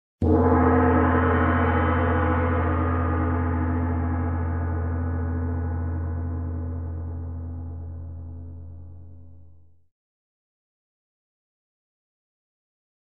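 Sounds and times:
gong ringing: 0.2 - 9.4.

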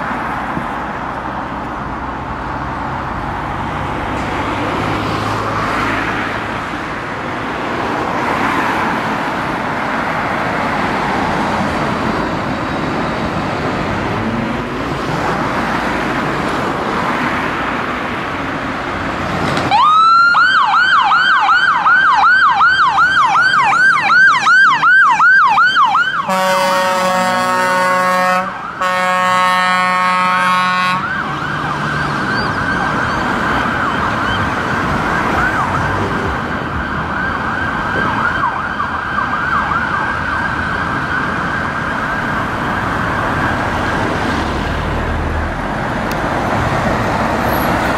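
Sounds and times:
siren yelping: 19.7 - 29.1, 30.6 - 44.1
air horn blasts: 26.3 - 31.1.

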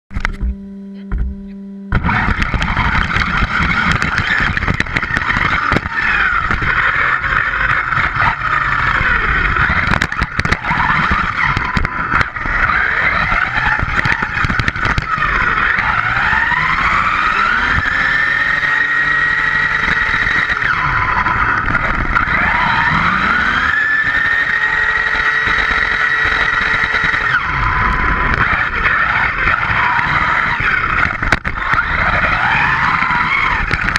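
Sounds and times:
brief steady hum: 0.1 - 5.9
electric motor whining: 0.1 - 33.9
tyre and drivetrain rush: 1.9 - 33.9.

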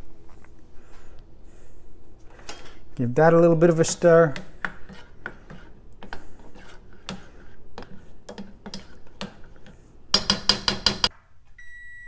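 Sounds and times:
spatula scraping a saucepan: 3.6 - 10.6.

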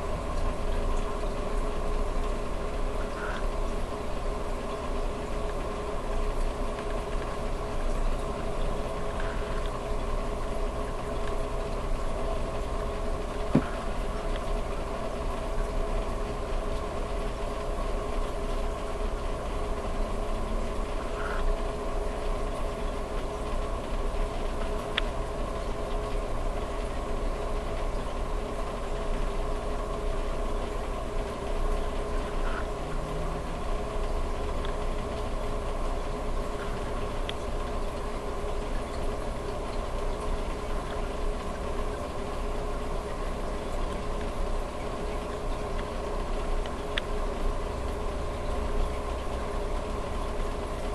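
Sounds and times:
aquarium pumps humming: 0.0 - 50.9
water circulating: 0.0 - 50.9.

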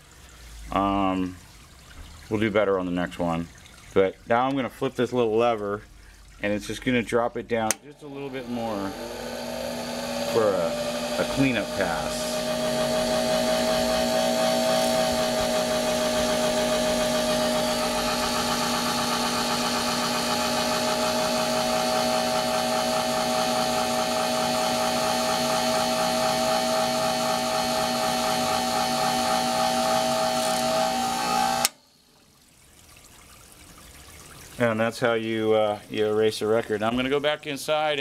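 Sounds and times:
shop vac hiss: 8.0 - 18.3
shaving machine motor hum: 8.0 - 31.8.

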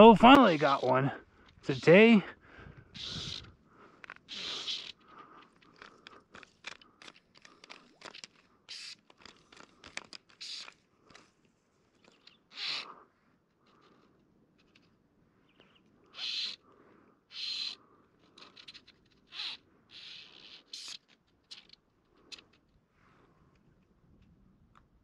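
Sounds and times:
reel drag buzzing: 0.0 - 1.1, 2.9 - 6.8, 17.3 - 22.5
fly reel clicking: 0.2 - 1.0, 3.0 - 11.3, 17.3 - 22.6.

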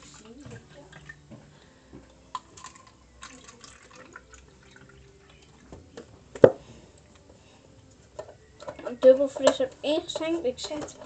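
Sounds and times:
drink pouring into plastic cup: 2.3 - 5.7.

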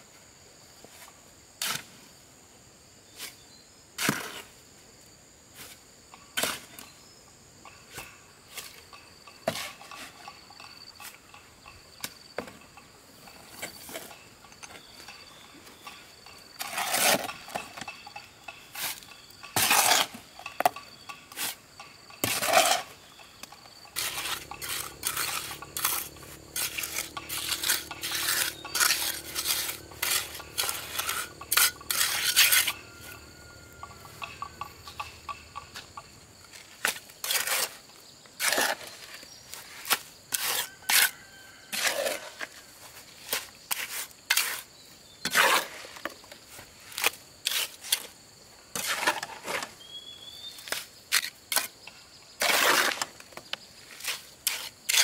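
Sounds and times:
insects chirring: 0.0 - 55.0
clinks and knocks: 8.8 - 36.2.

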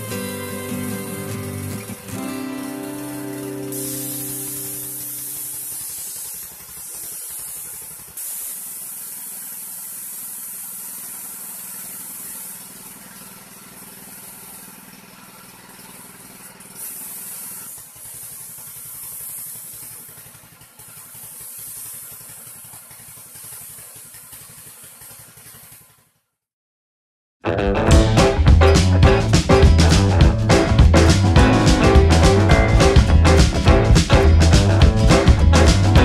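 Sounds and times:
paint spray gun hissing: 0.0 - 26.1
low motor hum: 27.9 - 36.0.

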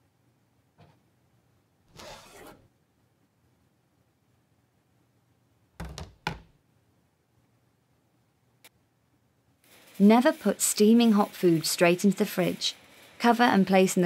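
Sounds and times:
metal baking tray scraping: 1.9 - 2.7, 9.7 - 14.0.

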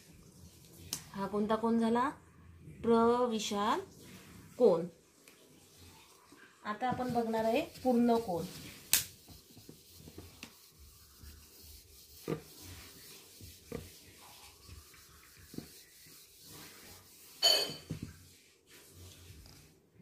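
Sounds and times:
eraser rubbing on whiteboard: 6.9 - 19.7.

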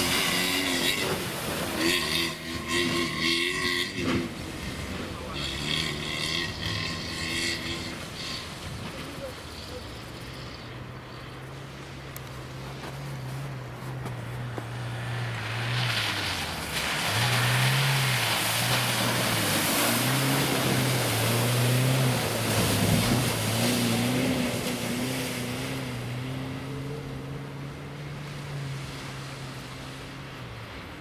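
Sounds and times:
tyres churning through slush: 0.0 - 10.2, 12.5 - 26.7
car engine revving: 0.0 - 10.4, 13.6 - 30.1.

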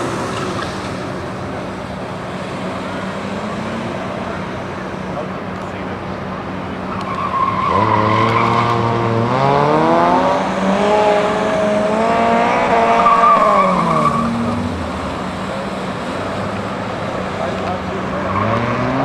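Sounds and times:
car engine accelerating: 0.0 - 19.0
tires squealing: 5.7 - 19.0.

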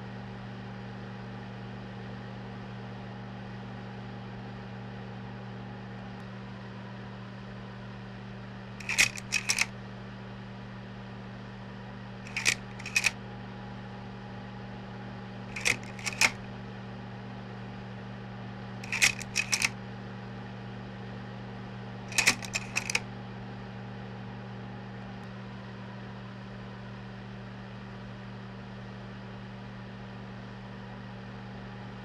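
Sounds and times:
slide projector humming: 8.8 - 9.7, 12.3 - 13.2, 15.5 - 16.5, 18.8 - 19.7, 22.1 - 23.0
slide-change mechanism clicks: 8.8 - 9.7, 12.3 - 13.2, 15.5 - 16.4, 18.8 - 19.7, 22.1 - 23.0.

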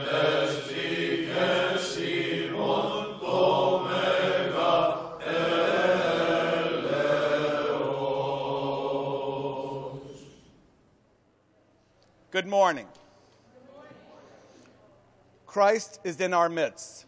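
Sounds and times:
choir chanting long notes: 0.0 - 10.6.

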